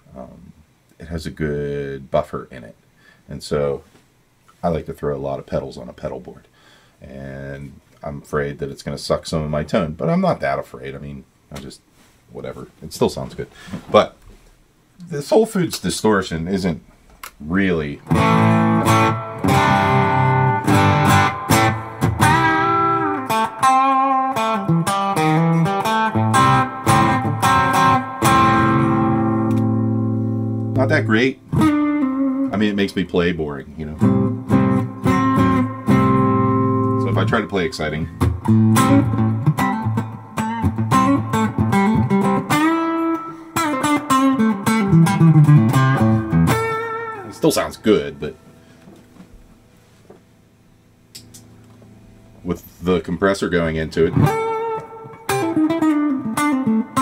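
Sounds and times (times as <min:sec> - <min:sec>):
distorted electric guitar: 0:18.0 - 0:33.0, 0:33.8 - 0:49.4, 0:51.1 - 0:57.0.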